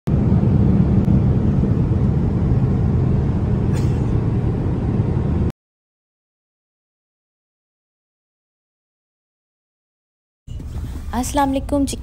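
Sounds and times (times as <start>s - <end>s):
jet airliner cabin rumble: 0.1s - 5.5s, 10.5s - 12.0s.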